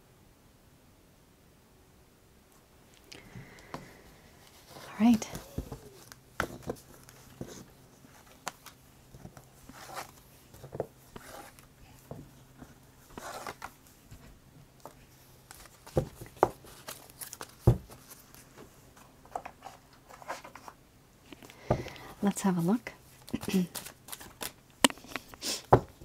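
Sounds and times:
cards sliding and rustling: 3.2s - 20.8s, 23.0s - 25.8s.

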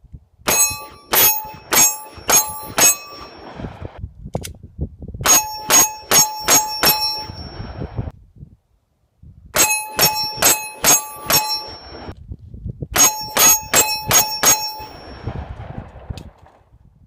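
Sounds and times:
steel target ringing: 0.5s - 3.6s, 5.2s - 8.0s, 9.6s - 12.2s, 13.0s - 15.3s.

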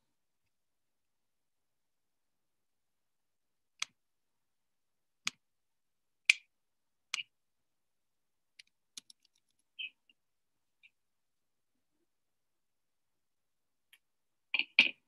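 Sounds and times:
sharp clicks: 8.6s - 9.8s.

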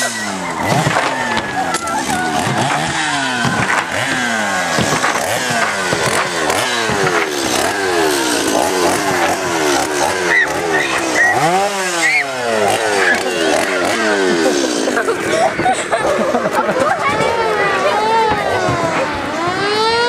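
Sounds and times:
chainsaw engine revving: 0.0s - 20.0s.

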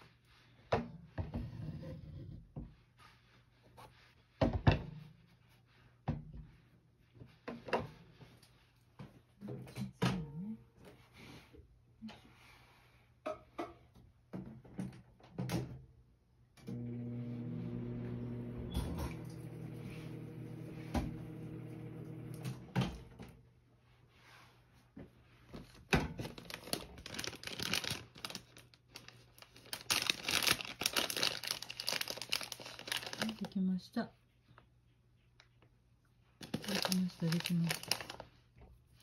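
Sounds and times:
kitchen appliance humming: 16.6s - 23.0s
packet crinkling: 26.2s - 33.6s, 36.4s - 38.4s.

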